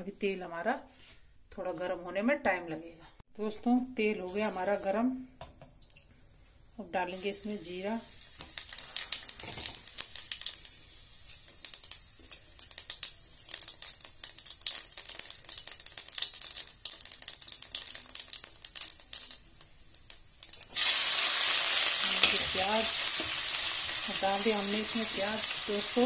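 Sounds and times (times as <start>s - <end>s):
onion sizzling in oil: 7.0s - 26.0s
seeds crackling in hot oil: 7.0s - 26.0s.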